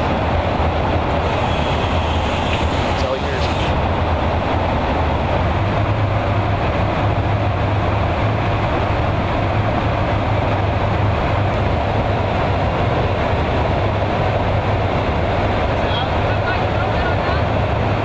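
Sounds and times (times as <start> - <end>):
airflow rushing: 0.0 - 9.3
low engine drone: 0.0 - 18.0.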